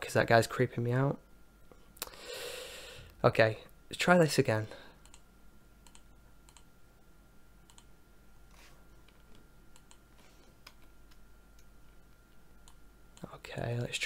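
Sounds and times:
low steady hum: 0.0s - 14.0s
mouse and keyboard clicks: 7.7s - 7.9s, 9.0s - 11.7s.

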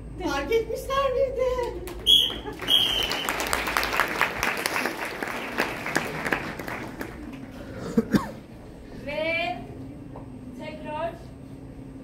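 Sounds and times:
audience applauding: 1.9s - 7.8s.

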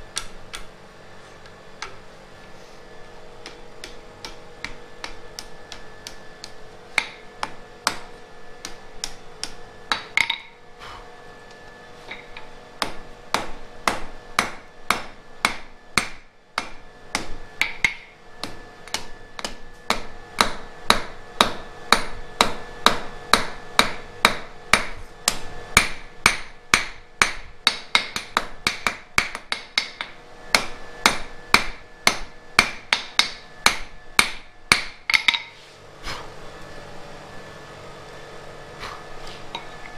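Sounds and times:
hammer striking iron on anvil: 3.4s - 10.6s, 12.1s - 35.6s.

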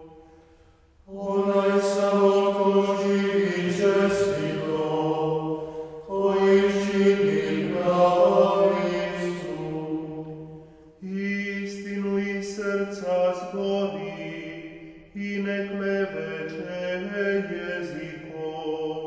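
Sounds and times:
male voices chanting: 1.1s - 10.3s.

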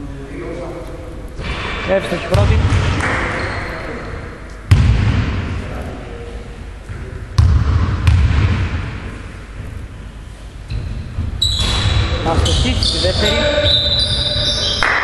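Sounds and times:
basketball bouncing on hardwood floor: 4.7s - 5.3s, 7.4s - 8.8s.

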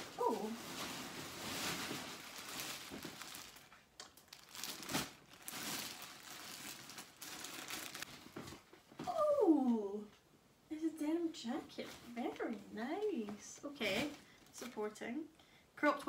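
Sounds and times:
packaging bag rustling and crinkling: 0.0s - 8.7s.

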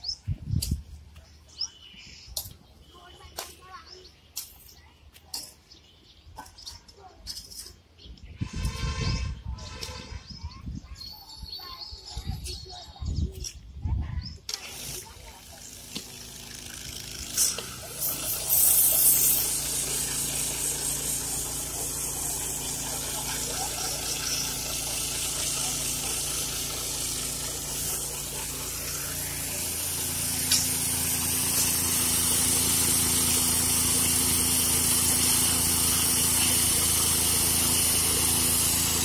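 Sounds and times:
hissing grind: 14.5s - 39.0s
small petrol engine running: 14.5s - 39.0s.

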